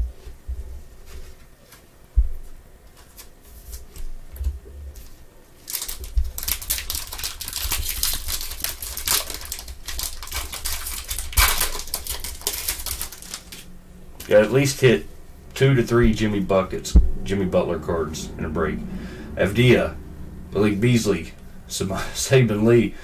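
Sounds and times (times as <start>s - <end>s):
foil wrapper crinkling and tearing: 5.0s - 14.8s
card handling: 5.6s - 14.4s
thump: 17.0s - 17.2s.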